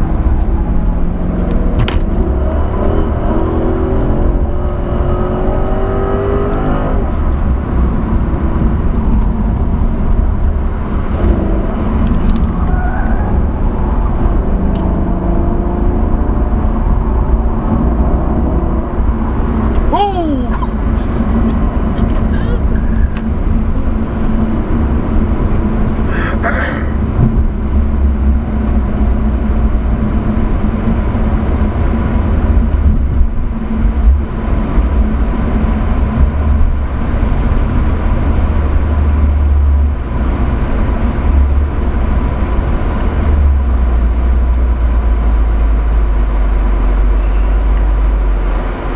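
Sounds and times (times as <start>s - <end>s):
car engine and road noise: 0.0s - 48.9s.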